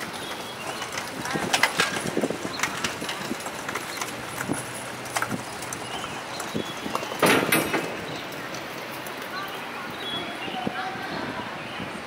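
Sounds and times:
loud clatter: 0.0s - 8.6s
street background noise: 0.0s - 12.0s.

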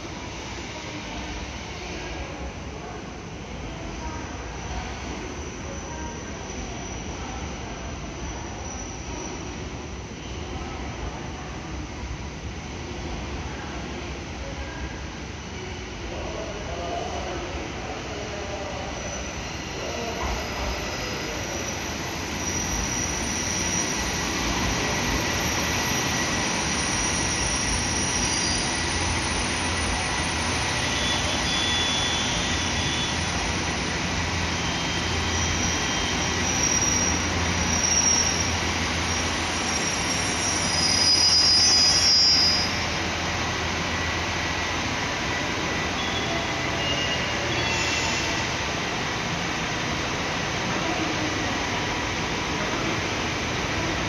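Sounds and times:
wheels and brakes squealing: 8.2s - 9.6s, 18.8s - 33.8s, 34.4s - 43.1s, 45.8s - 48.5s
train braking: 17.6s - 49.0s.

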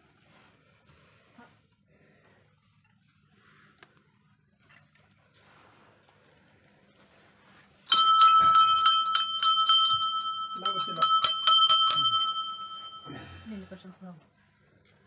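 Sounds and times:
temple bell ringing rapidly: 7.9s - 13.4s.

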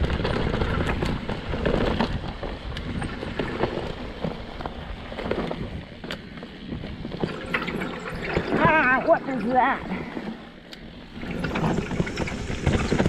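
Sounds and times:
bike clacking and rattling: 0.0s - 13.0s
tyre and wind noise: 0.0s - 13.0s.

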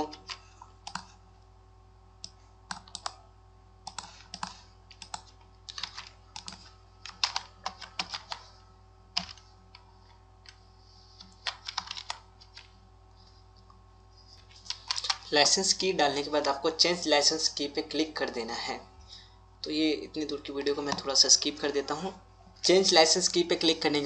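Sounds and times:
computer keyboard typing: 0.0s - 1.2s, 2.2s - 3.2s, 3.8s - 10.6s, 11.2s - 12.8s, 14.4s - 15.3s.

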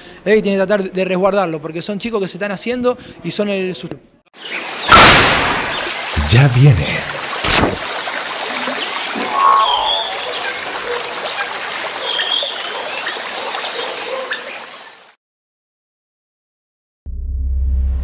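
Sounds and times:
hissing crackling noise: 6.2s - 7.9s
sharp hit: 7.4s - 7.8s.

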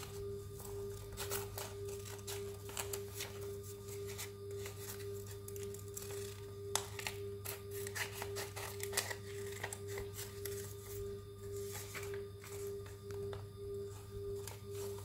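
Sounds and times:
steady pulsing hum: 0.0s - 15.0s
scissors snipping paper: 0.6s - 3.4s, 4.0s - 10.6s.

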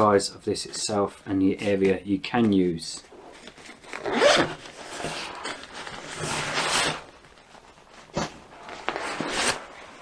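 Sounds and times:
nylon bag rustling: 3.4s - 10.0s.

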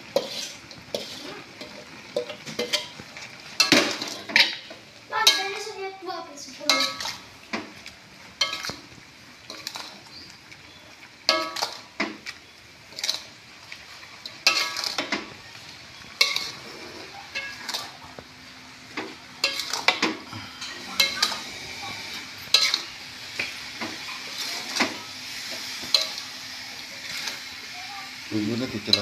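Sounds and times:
food sizzling: 0.0s - 29.0s
metal spatula scraping a wok: 0.1s - 5.6s, 6.6s - 7.2s, 8.4s - 8.8s, 12.9s - 13.4s, 14.2s - 15.3s, 16.1s - 18.0s, 19.4s - 26.2s, 26.8s - 27.7s.

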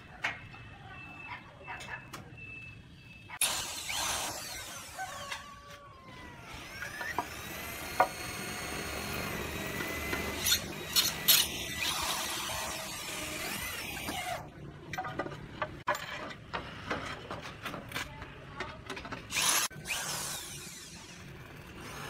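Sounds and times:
power drill running: 3.4s - 5.5s, 6.1s - 14.4s, 19.3s - 22.0s.

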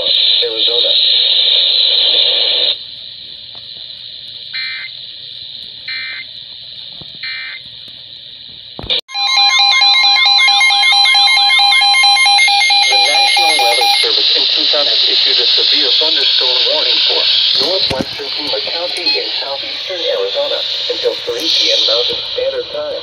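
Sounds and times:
radio static: 0.0s - 4.8s, 12.6s - 23.0s
steady alert tone: 9.1s - 14.1s
warbling sweeping alarm tones: 9.1s - 23.0s
warbling data chirps: 10.4s - 23.0s.

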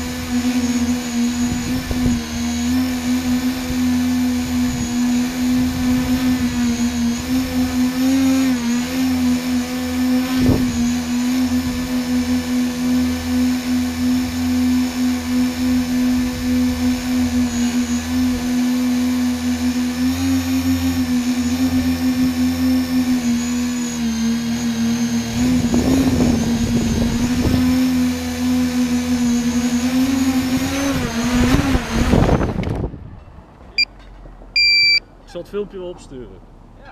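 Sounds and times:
drone motors and propellers humming: 0.0s - 33.9s, 34.5s - 35.0s
gusty wind rumble: 31.3s - 33.5s.

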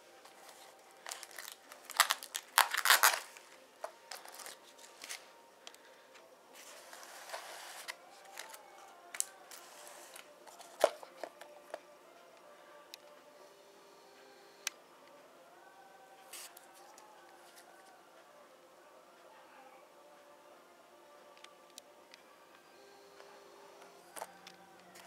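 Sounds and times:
rustling and crinkling: 0.2s - 5.3s.

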